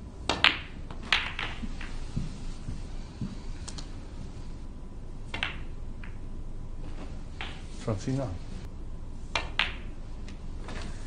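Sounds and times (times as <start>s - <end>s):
snooker balls knocking and clicking: 0.2s - 3.4s, 5.2s - 8.4s, 9.3s - 10.8s.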